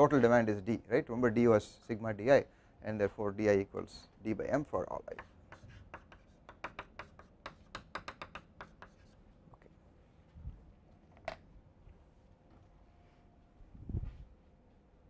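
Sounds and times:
chalk tapping and scratching: 5.1s - 9.2s.

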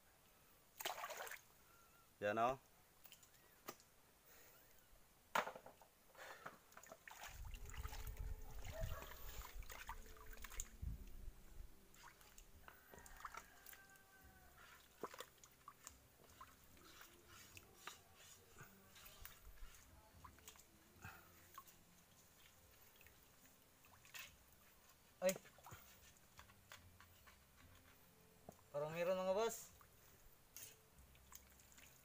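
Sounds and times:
water sloshing: 0.8s - 1.5s, 6.7s - 11.2s, 11.9s - 26.4s
hands digging in wet mud: 14.5s - 23.2s.

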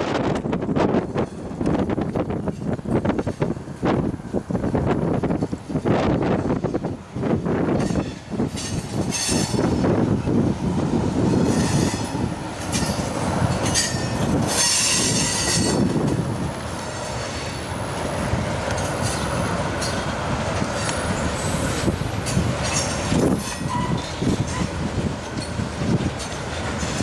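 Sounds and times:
train wheels rumbling on rail: 0.0s - 27.0s
high-pitched wheel squeal: 13.7s - 15.9s, 22.8s - 24.8s.

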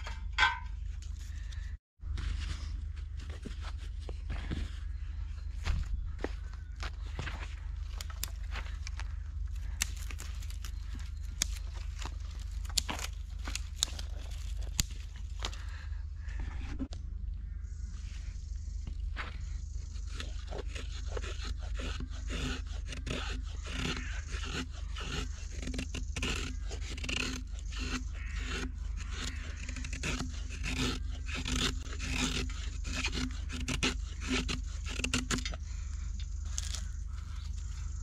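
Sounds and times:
knife scraping stick: 19.9s - 35.6s.

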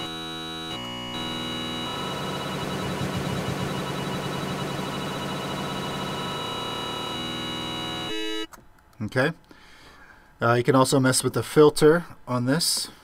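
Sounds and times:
synth drone: 0.0s - 8.5s.

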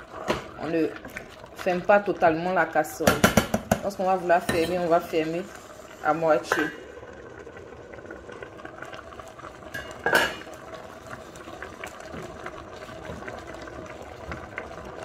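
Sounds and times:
sauce bubbling in a pot: 0.0s - 15.0s
pot lid clanking: 9.7s - 10.4s.

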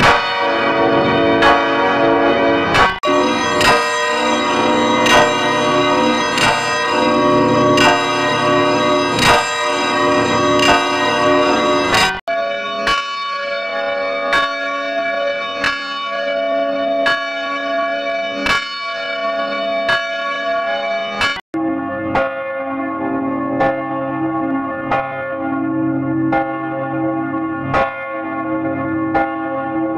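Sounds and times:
swinging church bell ringing: 0.0s - 27.4s.

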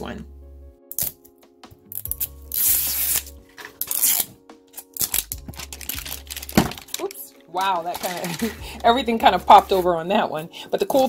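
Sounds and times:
faint background music: 0.0s - 11.0s
paper wrapping tearing: 1.9s - 9.0s.

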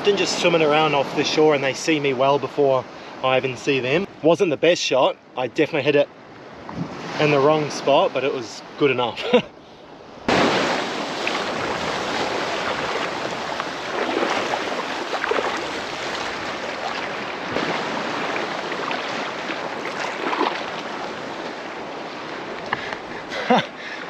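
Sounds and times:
seawater lapping over sand: 0.0s - 5.0s, 10.3s - 24.0s
small water splashes: 10.3s - 21.6s.

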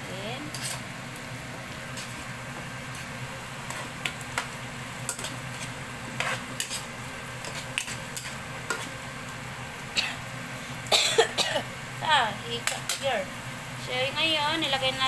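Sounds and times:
pan sizzling: 0.0s - 15.0s
spatula scraping pan: 0.5s - 0.9s, 3.0s - 4.5s, 5.1s - 9.0s.

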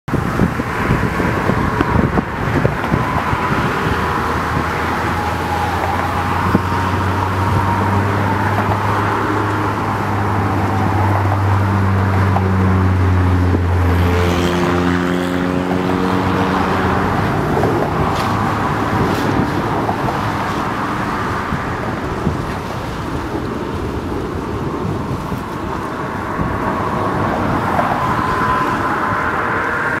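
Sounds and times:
traffic noise: 0.0s - 30.0s.

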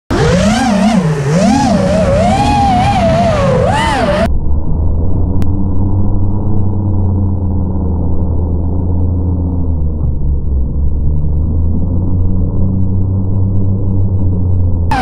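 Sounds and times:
quadcopter motors whining: 0.1s - 4.3s
muffled low hum: 1.2s - 15.0s.

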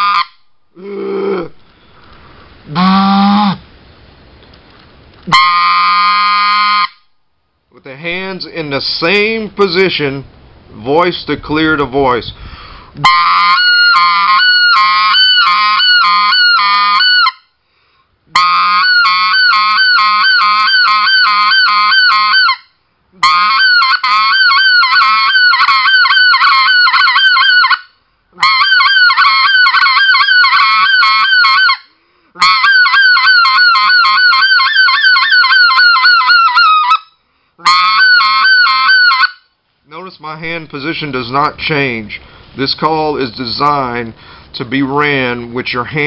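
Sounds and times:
goose call yodeling notes: 0.0s - 1.6s, 2.7s - 3.6s, 5.3s - 7.1s, 13.0s - 17.5s, 18.3s - 40.1s.

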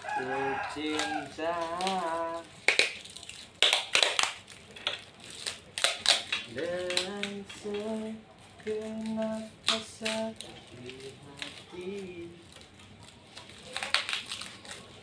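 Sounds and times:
person singing: 0.2s - 2.5s, 6.5s - 12.6s.

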